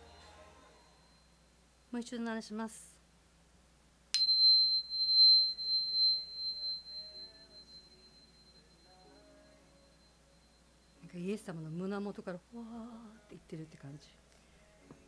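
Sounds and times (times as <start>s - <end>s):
tuning fork ringing high tone: 0.0s - 1.6s, 4.1s - 11.8s.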